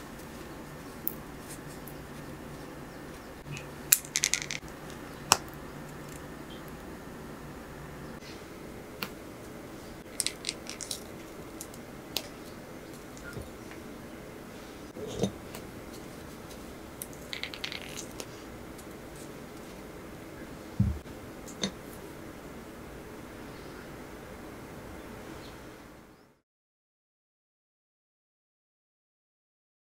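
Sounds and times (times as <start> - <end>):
low room hum: 0.0 - 26.4
cookies snapping: 3.5 - 6.8, 10.0 - 13.4, 17.0 - 19.3
soft low thump: 20.8 - 21.0.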